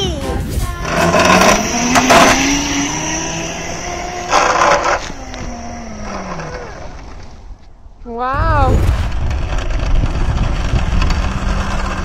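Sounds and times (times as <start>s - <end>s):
electric motorbike motor whine: 0.8s - 7.5s, 9.1s - 12.0s.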